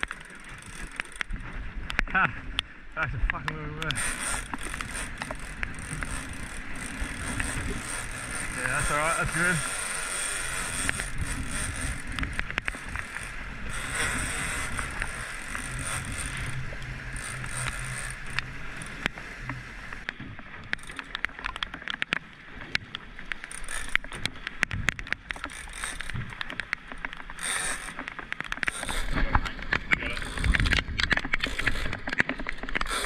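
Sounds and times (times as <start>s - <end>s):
fishing reel clicking: 0.0s - 1.4s, 3.8s - 20.1s, 20.7s - 21.6s, 23.3s - 24.3s, 24.9s - 26.4s, 27.4s - 29.2s, 30.1s - 32.0s, 32.6s - 33.0s
outboard motor running: 0.0s - 2.6s, 3.3s - 21.7s, 27.3s - 33.0s
water rushing along hull: 0.0s - 33.0s.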